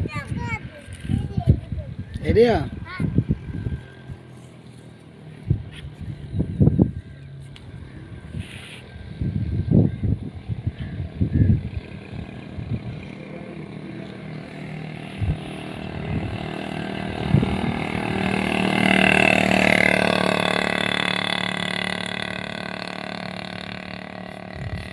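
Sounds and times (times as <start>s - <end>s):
vehicle engine passing: 2.2s - 9.8s, 11.1s - 24.9s.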